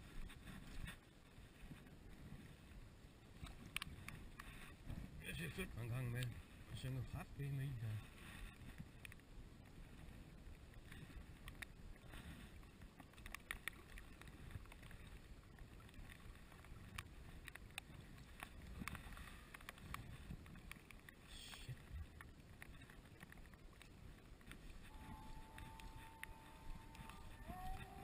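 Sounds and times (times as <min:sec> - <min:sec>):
faint wind rumble: 0:00.0 - 0:28.0
small waves lapping: 0:00.0 - 0:28.0
light ticks: 0:03.4 - 0:04.7, 0:05.6 - 0:06.9, 0:08.4 - 0:09.8, 0:10.7 - 0:12.1, 0:12.7 - 0:28.0.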